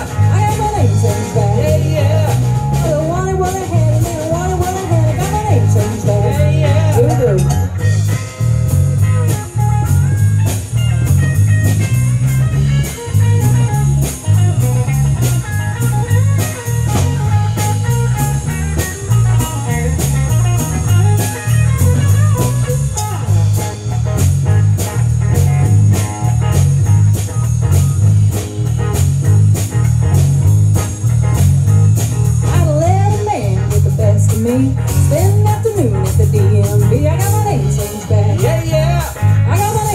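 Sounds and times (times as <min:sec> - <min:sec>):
bass guitar: 0:00.0 - 0:39.9
drum kit steady beat: 0:00.0 - 0:39.9
electric guitar lines: 0:00.0 - 0:39.9.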